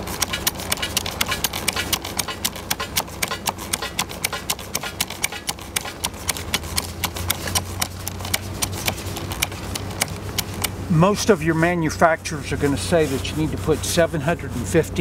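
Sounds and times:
hand pump clicking: 0.0s - 10.8s
low engine hum: 0.0s - 15.0s.

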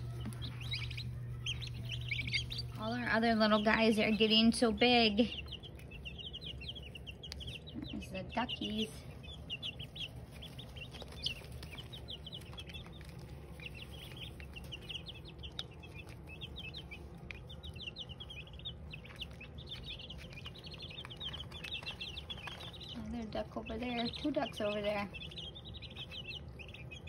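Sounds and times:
baby chicks and ducklings peeping: 0.0s - 27.0s.

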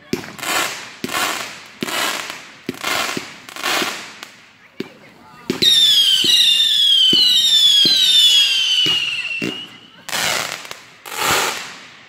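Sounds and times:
firework pops: 2.7s - 8.0s
whistling firework: 5.5s - 12.0s.

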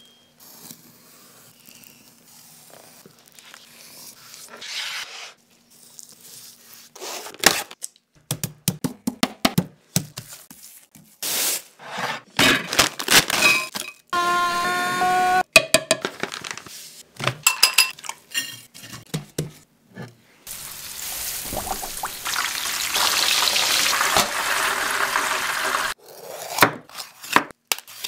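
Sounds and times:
food processor grinding snacks: 14.2s - 15.4s, 23.1s - 26.0s.

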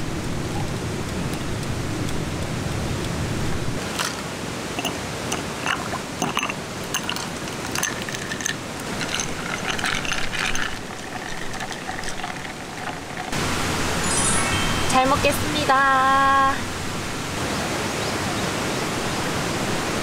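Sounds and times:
running stream water: 0.0s - 20.0s
ice cubes clinking in glass: 4.8s - 13.4s.

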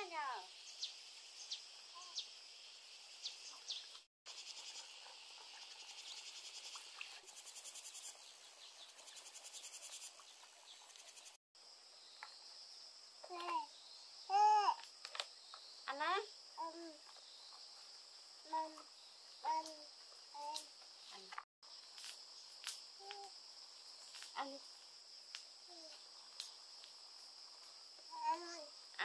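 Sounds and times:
chorus of insects: 0.0s - 29.0s
fast pulsing insect trill: 4.3s - 11.8s.

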